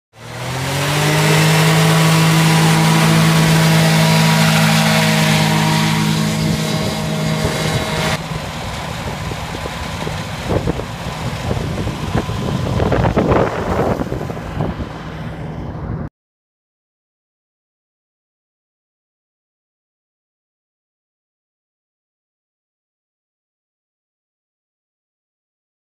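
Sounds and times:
hovercraft engine and fan: 0:00.2 - 0:16.1
rushes of air noise: 0:00.2 - 0:16.1.

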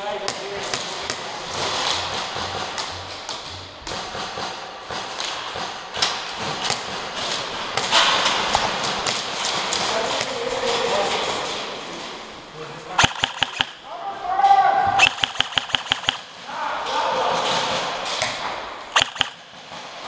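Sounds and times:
sharp knocks and taps: 0:15.0 - 0:16.2, 0:19.0 - 0:19.4.

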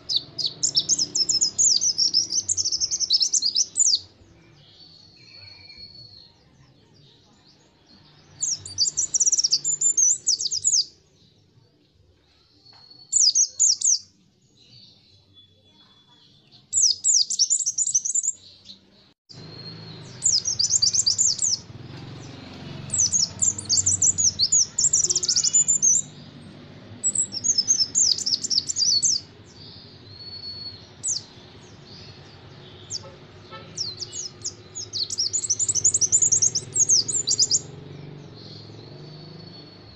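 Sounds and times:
bird fast high chirping: 0:00.0 - 0:04.1, 0:08.3 - 0:11.0, 0:13.0 - 0:14.1, 0:16.7 - 0:39.9
bird drawn-out whistles: 0:30.2 - 0:31.3.

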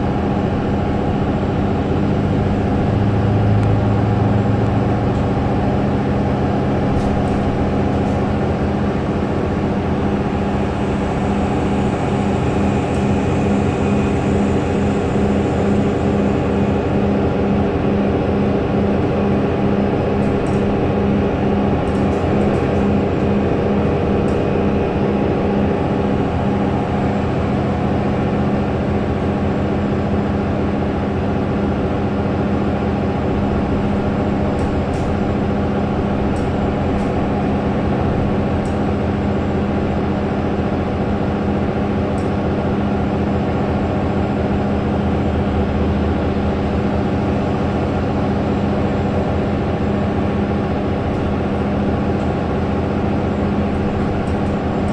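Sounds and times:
low drone: 0:00.0 - 0:40.4
bus diesel engine hum: 0:00.0 - 0:54.9.

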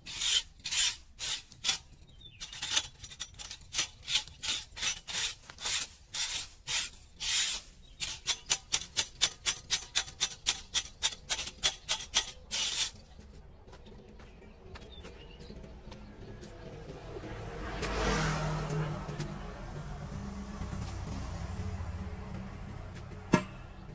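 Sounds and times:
tool scraping metal grate: 0:00.0 - 0:13.2.

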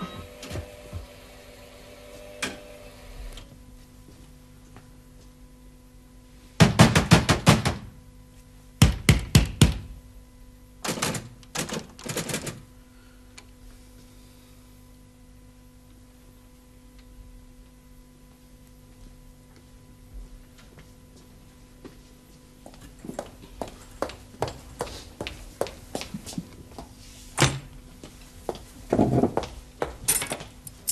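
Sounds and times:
faint steady hum: 0:07.8 - 0:30.9.

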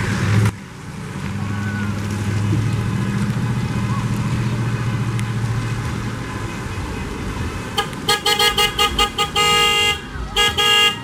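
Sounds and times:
cars passing on wet road: 0:00.0 - 0:11.0
car horn honking: 0:07.7 - 0:11.0.

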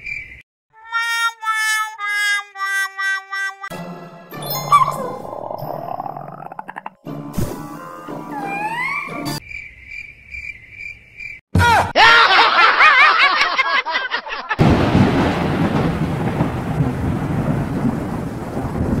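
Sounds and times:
low thunder rumbling: 0:14.6 - 0:19.0
rain rushing: 0:14.6 - 0:19.0.

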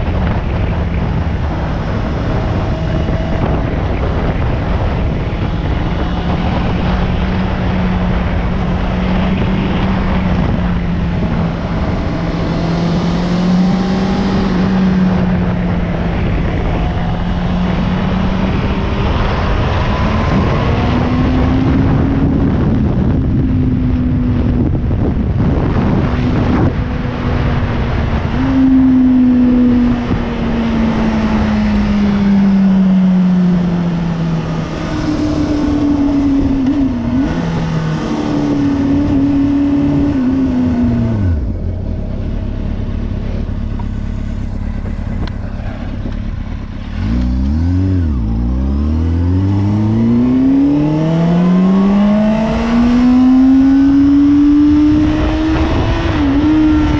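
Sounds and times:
motorcycle engine at road speed: 0:00.0 - 0:56.9
wind rushing over microphone: 0:00.0 - 0:56.9.

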